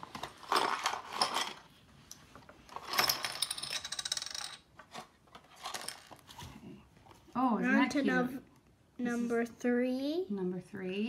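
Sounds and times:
plastic pieces clattering on wood: 0:00.0 - 0:01.7, 0:02.6 - 0:06.3
plastic pieces rattling in a box: 0:00.0 - 0:01.7, 0:02.7 - 0:06.3.

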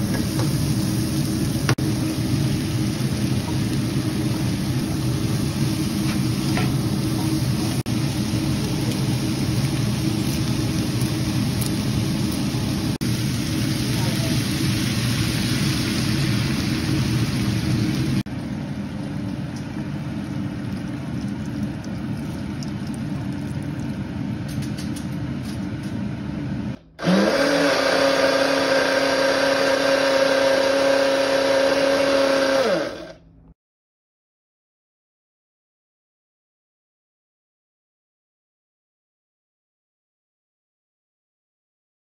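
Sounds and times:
stock sizzling in hot pan: 0:00.0 - 0:24.9
soup simmering with small pops: 0:20.4 - 0:25.0
blender running: 0:27.0 - 0:33.2.

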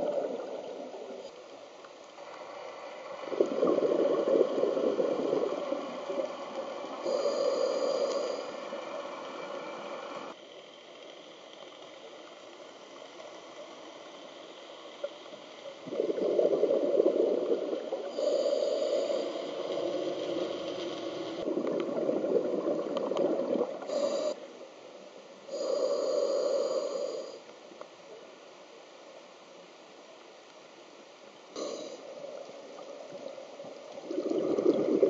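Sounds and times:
low steady hiss: 0:00.0 - 0:35.0
regulator bubbling exhalations: 0:03.3 - 0:06.3, 0:15.8 - 0:19.2, 0:21.4 - 0:24.4, 0:34.0 - 0:35.0.

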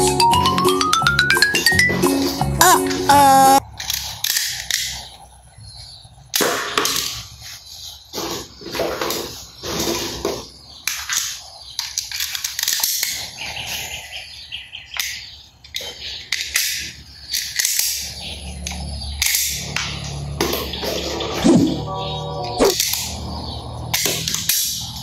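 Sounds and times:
chirping tones: 0:00.0 - 0:03.6, 0:17.1 - 0:23.8
toy guns clicking and firing: 0:03.8 - 0:05.1, 0:10.9 - 0:13.3, 0:14.9 - 0:19.9, 0:23.9 - 0:25.0.

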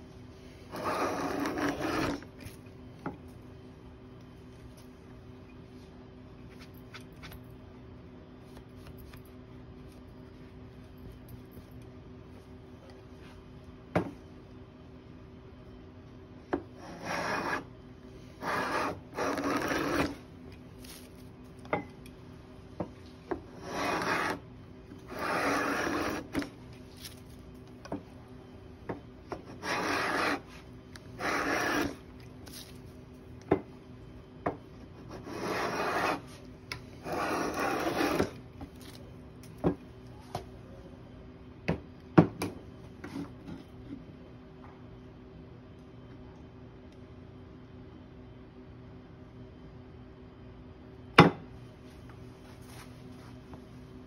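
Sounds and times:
hand plane rasping on wood: 0:00.7 - 0:02.2, 0:16.8 - 0:17.6, 0:18.4 - 0:20.1, 0:23.6 - 0:24.4, 0:25.1 - 0:26.3, 0:29.5 - 0:30.5, 0:31.2 - 0:32.0, 0:35.1 - 0:36.3, 0:37.0 - 0:38.3.

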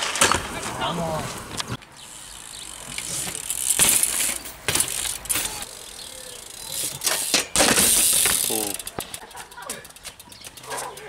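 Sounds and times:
bike tyres scraping concrete: 0:00.0 - 0:11.0
wheels knocking down on concrete: 0:06.9 - 0:09.8.

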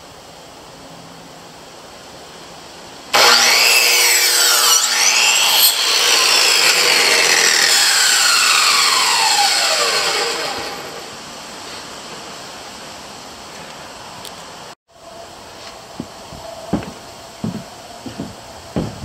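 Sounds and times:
power saw cutting wood: 0:03.2 - 0:11.2.

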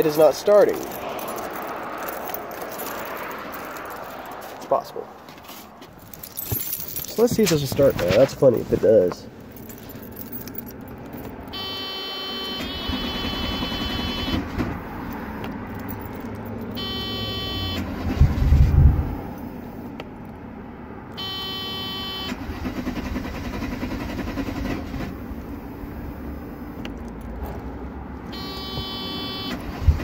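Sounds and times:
electronic warning tone: 0:16.8 - 0:17.8, 0:28.4 - 0:29.6
starter cranking engine: 0:22.4 - 0:25.2.

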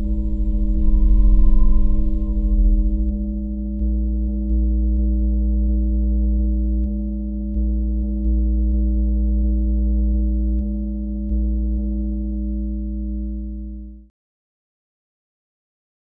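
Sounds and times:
synthesizer drone chord: 0:00.0 - 0:03.9
deep bass: 0:00.0 - 0:14.0.

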